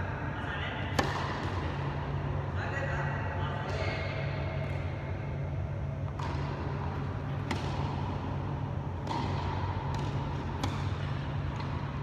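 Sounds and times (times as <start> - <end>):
tennis racket striking ball: 0.9 - 1.8, 6.1 - 12.0
tennis ball bouncing: 0.9 - 2.0, 6.0 - 12.0.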